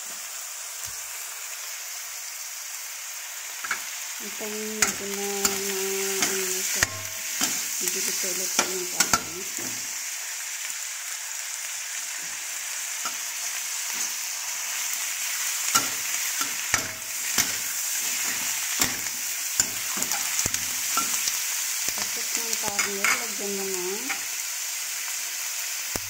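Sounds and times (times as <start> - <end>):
chicken sizzling in oil: 0.0 - 26.0
spatula clacking against wok: 4.8 - 7.8, 8.6 - 9.8, 15.7 - 21.4.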